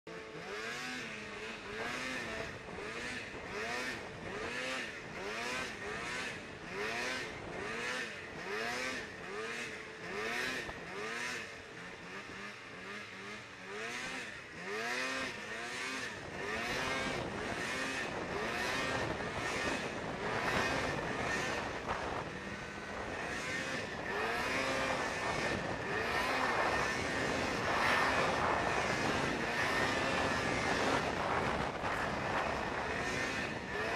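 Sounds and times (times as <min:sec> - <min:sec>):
snowmobile engine revving: 0:00.1 - 0:33.9.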